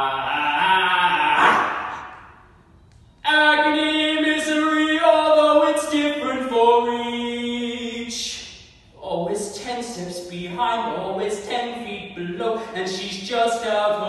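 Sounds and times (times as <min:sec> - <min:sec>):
man singing wordless held notes: 0:03.2 - 0:14.0.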